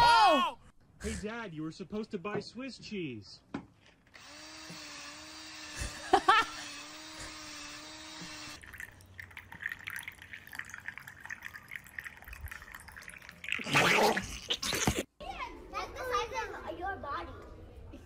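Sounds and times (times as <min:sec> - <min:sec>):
cordless drill running: 0:04.1 - 0:08.6
faint wet dripping: 0:08.6 - 0:13.7.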